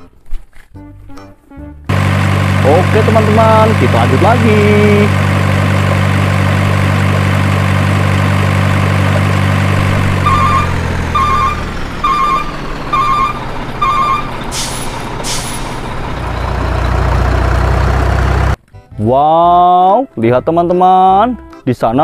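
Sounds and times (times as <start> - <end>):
truck engine idling: 1.9 - 18.6
reversing beeps: 10.2 - 14.4
air brake hisses: 14.5 - 15.9.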